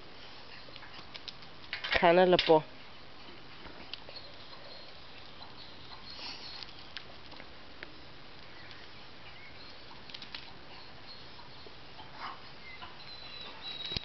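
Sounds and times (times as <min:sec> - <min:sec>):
faint outdoor hiss: 0:00.0 - 0:14.0.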